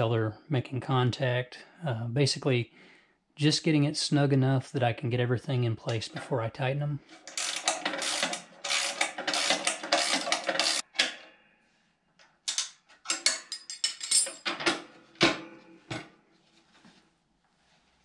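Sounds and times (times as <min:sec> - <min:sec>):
metallic clicks and clinks: 0:07.2 - 0:11.0, 0:12.5 - 0:14.7
ratchet wrench clicking: 0:07.3 - 0:10.9.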